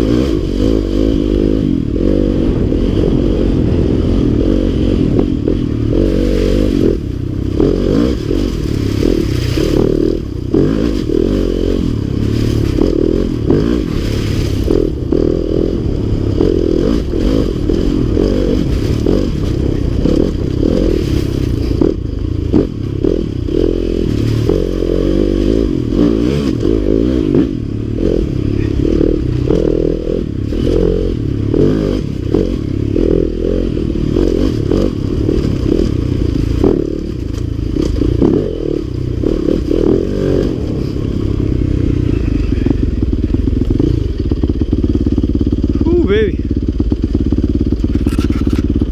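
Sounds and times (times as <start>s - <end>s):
dirt bike engine revving: 0.0s - 48.9s
bike knocking and clattering: 47.0s - 48.9s.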